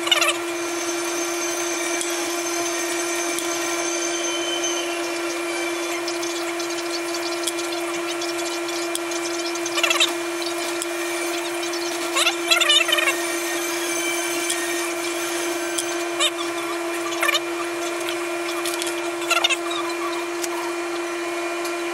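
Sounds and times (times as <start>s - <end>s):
electrical hum: 0.0s - 21.9s.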